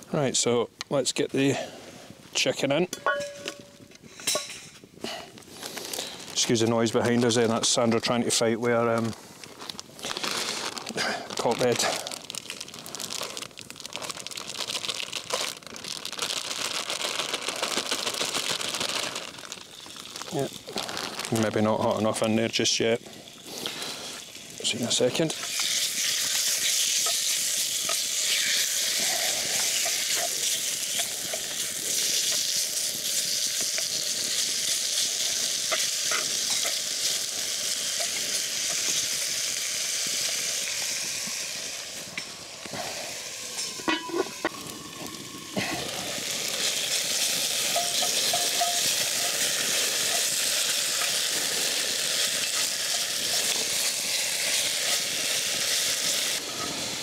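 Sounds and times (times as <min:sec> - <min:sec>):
clinks: 0:02.9 - 0:04.8, 0:43.6 - 0:44.5
chicken sizzling in a pan: 0:10.4 - 0:57.0.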